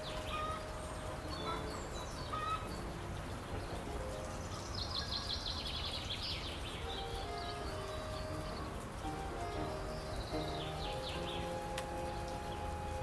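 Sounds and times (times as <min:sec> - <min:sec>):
small birds chirping: 0:00.0 - 0:13.0
steady outdoor background hiss: 0:00.0 - 0:13.0.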